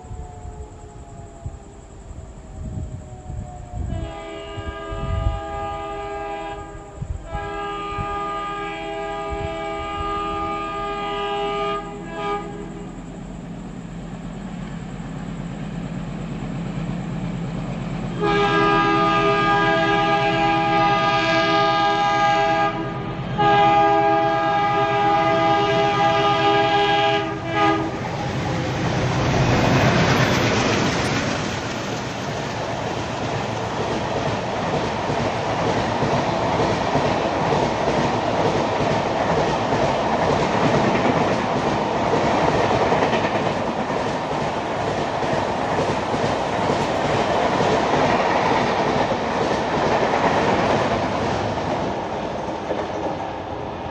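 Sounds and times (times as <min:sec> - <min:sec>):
locomotive rumbling past: 0:00.0 - 0:53.9
train coaches rushing past: 0:00.0 - 0:53.9
locomotive air horn blowing: 0:03.9 - 0:12.9, 0:18.2 - 0:28.2.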